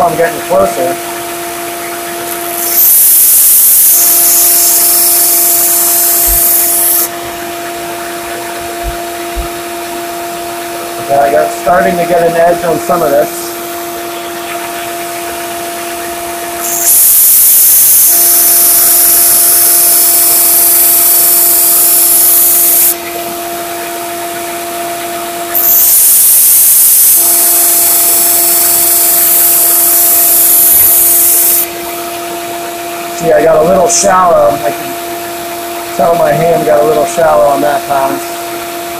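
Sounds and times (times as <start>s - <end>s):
belt sander motor hum: 1.9s - 38.9s
belt sander grinding steel: 2.2s - 10.1s, 15.5s - 23.9s, 24.7s - 32.2s.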